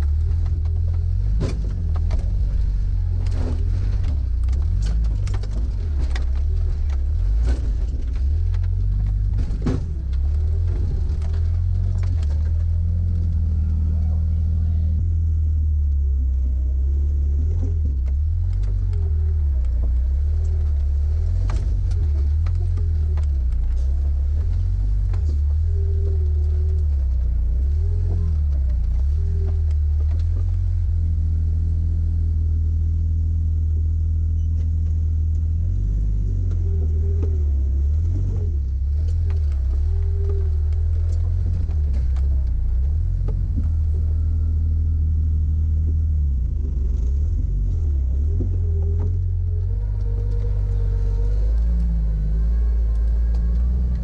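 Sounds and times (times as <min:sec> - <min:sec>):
body and suspension rattles: 0:00.0 - 0:54.0
car engine running low: 0:00.0 - 0:54.0.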